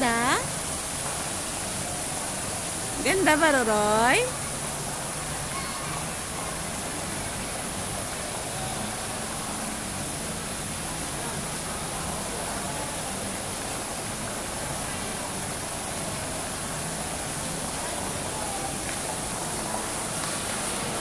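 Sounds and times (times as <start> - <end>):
fountain water rushing over rocks: 0.0 - 21.0
faint voices murmuring: 4.9 - 21.0.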